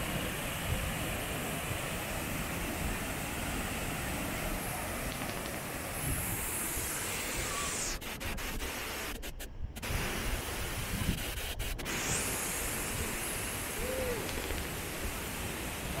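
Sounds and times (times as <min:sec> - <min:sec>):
waterfall rushing: 0:12.6 - 0:16.0.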